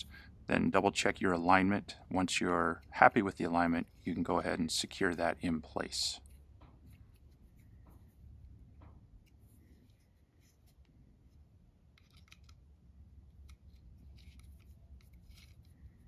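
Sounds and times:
hex key clicking and scraping: 11.9 - 12.7.

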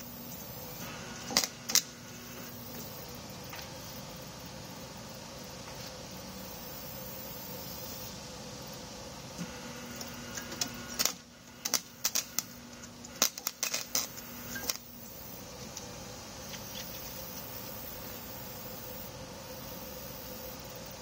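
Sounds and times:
welding arc crackling and popping: 0.0 - 4.0, 9.2 - 19.1
steady hum: 0.0 - 21.0.

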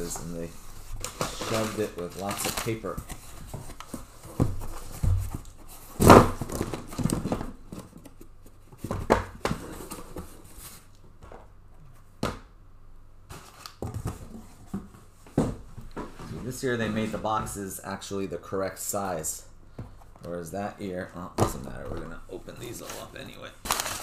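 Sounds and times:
paper and cardboard rustling: 0.0 - 10.9, 21.5 - 24.0.

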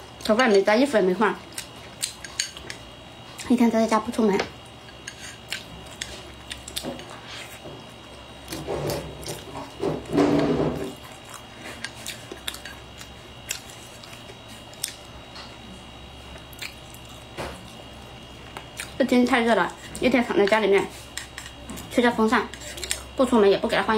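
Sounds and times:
chewing: 10.8 - 15.1, 16.3 - 19.0.

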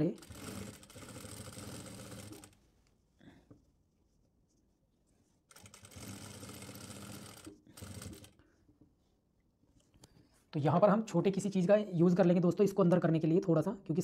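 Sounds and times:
sewing machine stitching: 0.0 - 2.6, 5.5 - 8.4.

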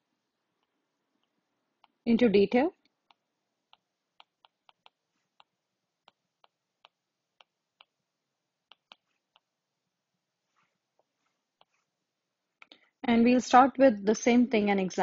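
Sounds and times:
stylus tapping touchscreen: 0.6 - 2.0, 2.9 - 8.0, 8.6 - 9.6, 10.9 - 11.9.

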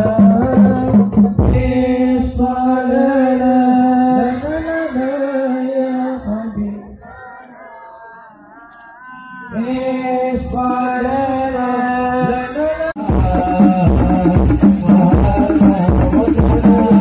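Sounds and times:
frame drums: 0.0 - 2.4, 13.0 - 17.0
person chanting over loudspeakers: 0.0 - 17.0.

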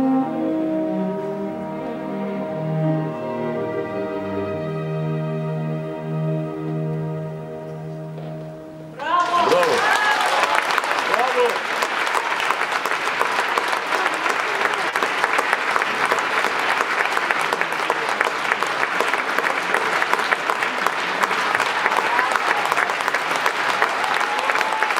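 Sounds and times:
audience applauding: 9.0 - 24.9.

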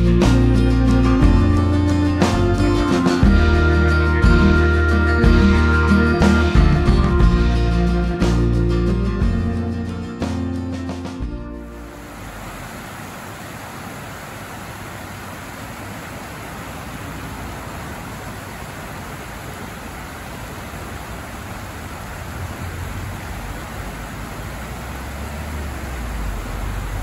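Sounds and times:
river water pouring over weirs: 11.6 - 27.0.

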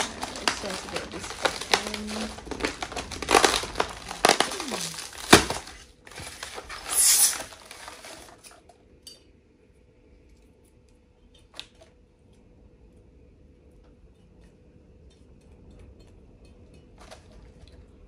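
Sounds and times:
packaging rustling and crinkling: 0.0 - 8.7.

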